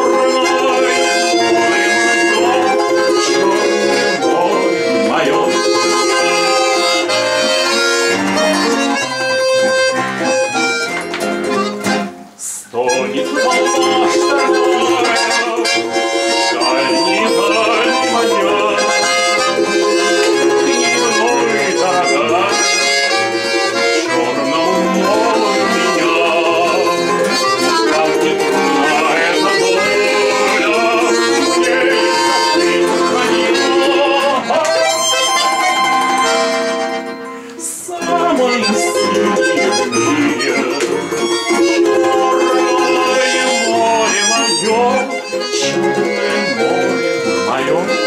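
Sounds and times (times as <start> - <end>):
acoustic guitar: 0.0 - 48.0
button accordion: 0.0 - 48.0
plucked string instrument: 0.0 - 48.0.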